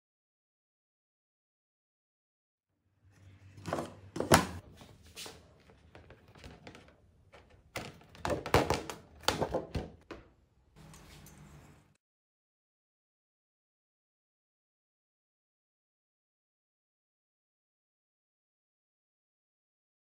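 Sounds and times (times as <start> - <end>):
wooden parts knocking on a workbench: 3.6 - 4.6, 7.7 - 10.3.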